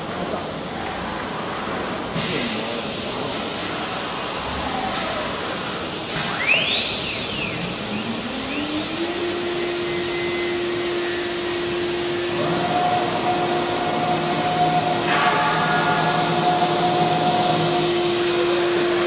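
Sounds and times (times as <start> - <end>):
machine hum: 2.9 - 19.0
router spindle whine: 5.2 - 19.0
high steady tone: 6.4 - 19.0.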